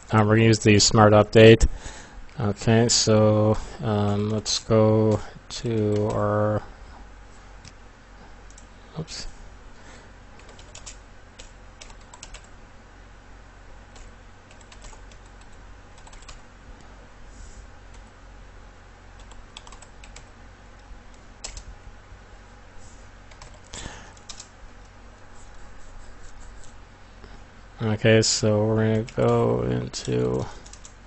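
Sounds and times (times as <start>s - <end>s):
faint low hum: 0.0s - 31.0s
computer keyboard typing: 5.1s - 6.2s, 10.4s - 12.5s, 13.9s - 16.4s, 19.2s - 20.3s, 21.4s - 21.7s, 23.3s - 24.5s, 29.0s - 31.0s.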